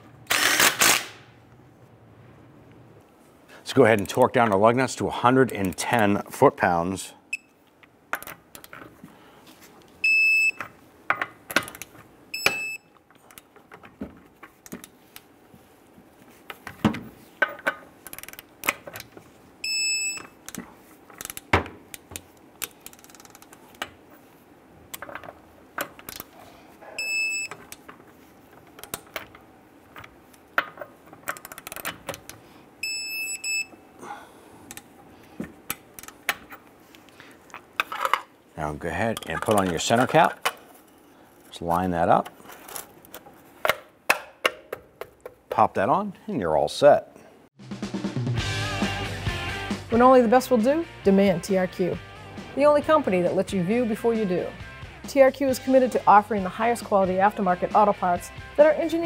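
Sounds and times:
torque wrench beep: 10.0 - 10.6, 12.4 - 12.9, 19.6 - 20.3, 27.0 - 27.6, 32.8 - 33.8.

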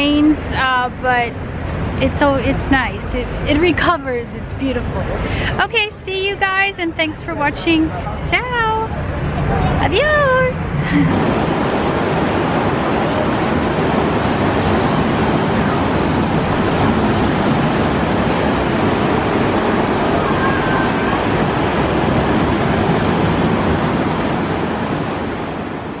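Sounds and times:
wind: 0.0 - 26.0
surf breaking on beach: 10.0 - 26.0.

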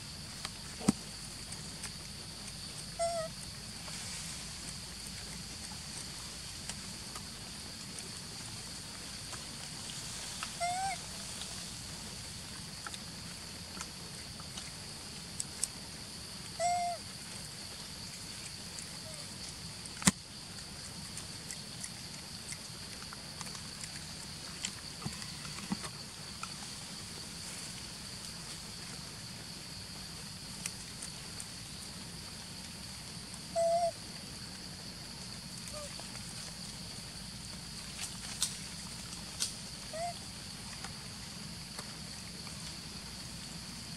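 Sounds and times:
short tonal animal calls: 2.9 - 3.4, 10.5 - 11.1, 16.6 - 17.0, 33.5 - 34.0, 39.9 - 40.2.

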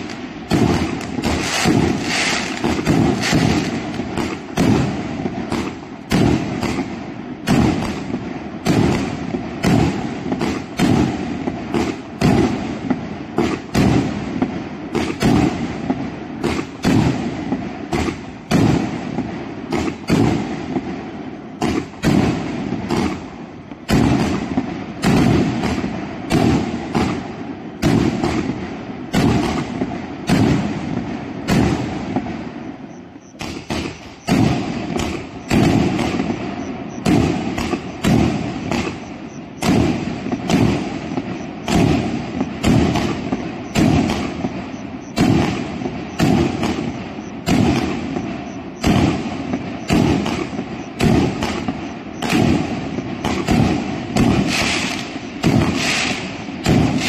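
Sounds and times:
firework launch thumps: 0.0 - 6.9, 33.4 - 44.5
firework aerial bursts: 0.0 - 57.0.

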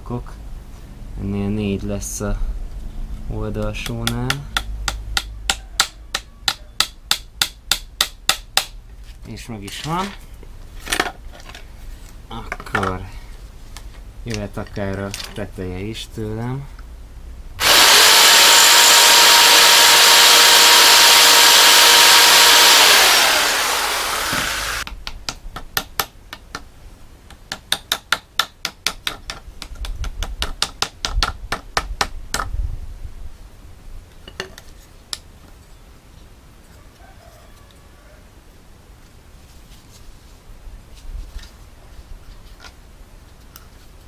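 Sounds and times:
electric jigsaw cutting wood: 17.6 - 24.9
hammer tapping nails: 27.4 - 32.5.

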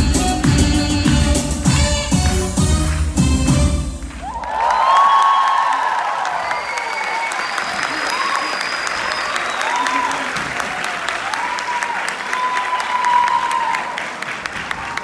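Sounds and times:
audience applauding: 3.9 - 15.0.

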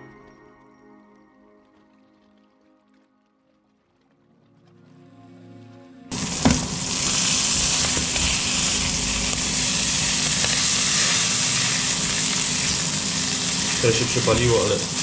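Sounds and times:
faint music: 0.0 - 6.2
burger patty sizzling in a frying pan: 6.1 - 15.0.

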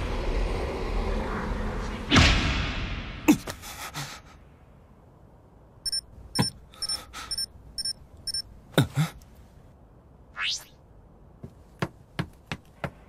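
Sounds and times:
short high electronic beeps: 5.9 - 8.4.

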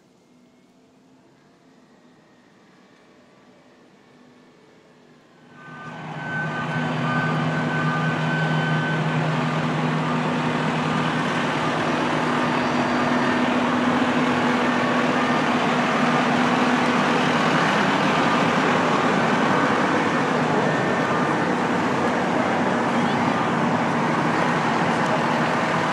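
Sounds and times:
diesel engine running: 5.5 - 25.9.

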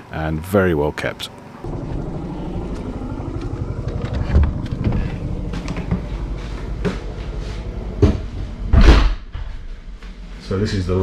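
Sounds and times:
motor engine running: 1.6 - 10.2.

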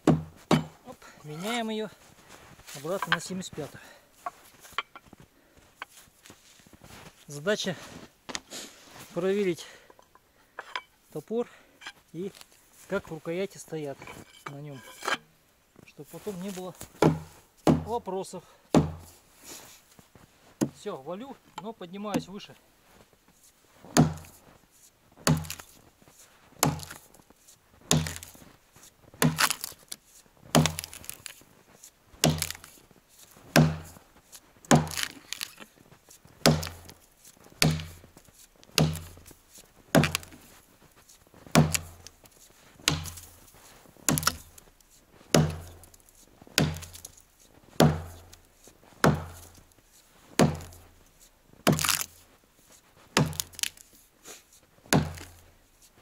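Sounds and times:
axe chopping tree trunk: 0.0 - 0.8, 16.9 - 18.0, 18.7 - 19.2, 20.6 - 20.8, 23.9 - 24.4, 25.2 - 25.8, 26.6 - 27.1, 27.9 - 28.4, 29.2 - 29.9, 30.5 - 31.4, 32.2 - 32.8, 33.5 - 34.0, 34.7 - 35.7, 36.4 - 38.1, 38.7 - 40.6, 41.5 - 42.2, 42.8 - 43.4, 44.1 - 44.7, 45.3 - 47.2, 47.8 - 49.6, 50.4 - 51.0, 51.6 - 52.2, 53.1 - 53.9, 54.9 - 55.5.

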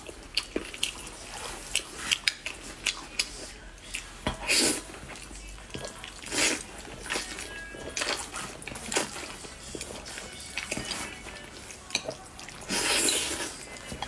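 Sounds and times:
soft chewing: 0.0 - 14.0
person slurping noodles: 4.4 - 4.9, 6.2 - 6.7, 12.6 - 13.5.

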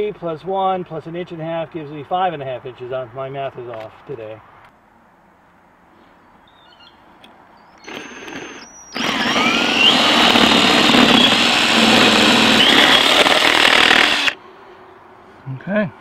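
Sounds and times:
drill boring into wood: 7.8 - 14.4.

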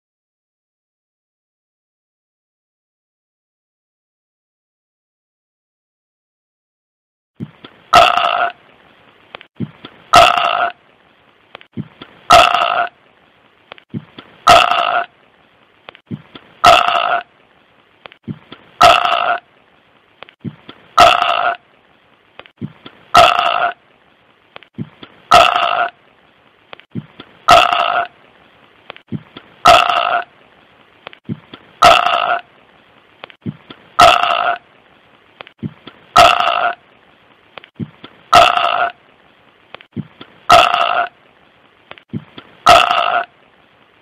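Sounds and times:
faint steady hiss: 7.4 - 44.0
short burp-like sound: 36.2 - 36.8, 40.5 - 41.1, 42.7 - 43.3.

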